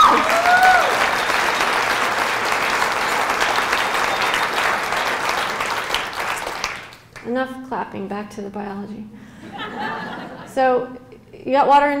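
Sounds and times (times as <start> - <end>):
person cheering whoop: 0.0 - 1.1
audience applauding: 0.0 - 7.2.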